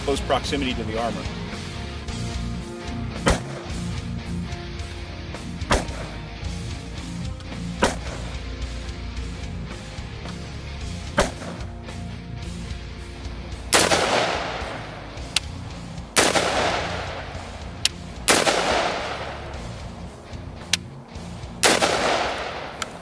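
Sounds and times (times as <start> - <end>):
background music: 0.0 - 23.0
rifle shots echoing: 3.2 - 3.9, 5.6 - 6.2, 7.7 - 8.4, 11.1 - 11.7, 13.7 - 20.0, 21.6 - 23.0.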